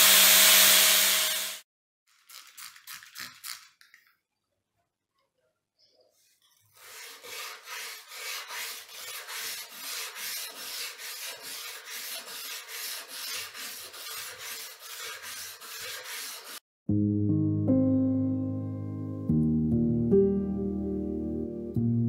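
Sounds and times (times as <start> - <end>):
file strokes on steel: 6.5 - 16.6.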